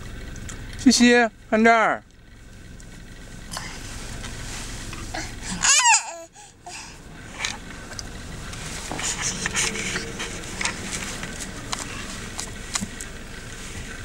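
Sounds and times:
car interior background noise: 0.0s - 14.0s
small rustles: 3.6s - 5.1s, 7.2s - 14.0s
toddler squealing: 5.2s - 6.4s.

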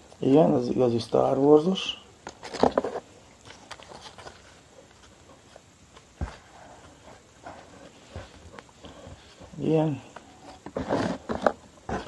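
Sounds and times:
paper rustling: 2.4s - 9.6s.

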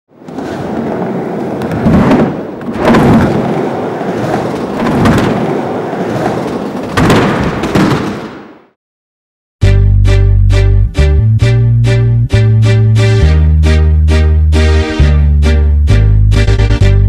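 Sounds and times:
deep thunder-like rumble: 1.6s - 7.3s.

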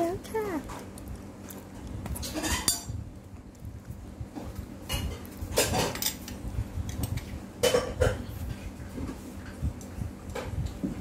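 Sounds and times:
metal spoon clattering on dish: 2.3s - 2.9s.

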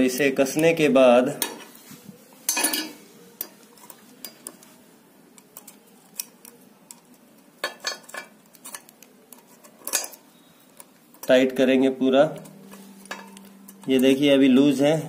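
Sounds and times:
pliers clicking on metal: 5.3s - 10.2s.

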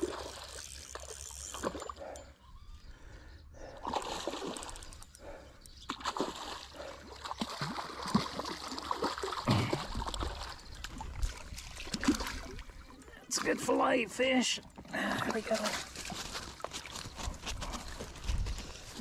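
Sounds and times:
fish splashing in water: 3.8s - 12.8s.

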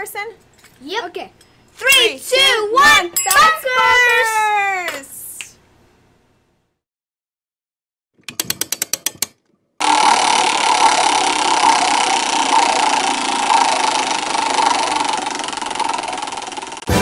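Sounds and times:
spinning wheel whirring rattle: 8.3s - 17.0s.

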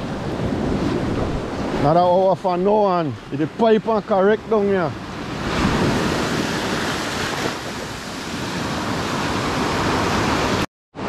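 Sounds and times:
wind noise on microphone: 0.0s - 2.3s, 5.0s - 10.6s
waves breaking: 0.0s - 10.7s.

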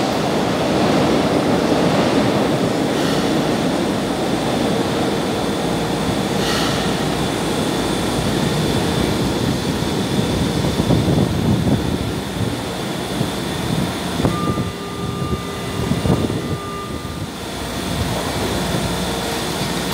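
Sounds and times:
subway train rumbling: 0.0s - 19.9s
electronic warning tone: 14.2s - 18.0s.

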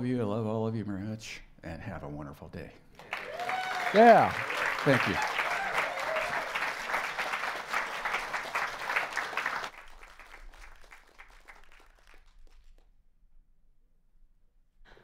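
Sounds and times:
congregation applauding: 3.0s - 12.8s.

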